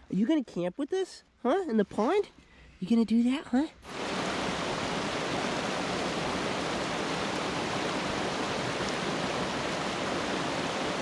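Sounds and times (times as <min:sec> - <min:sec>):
water rushing over rocks: 0:03.9 - 0:11.0.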